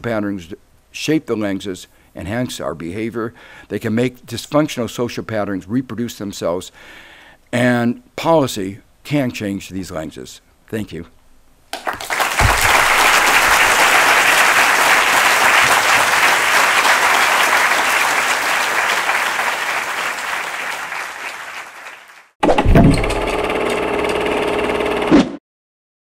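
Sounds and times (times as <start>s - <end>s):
audience applauding: 11.7s - 22.3s.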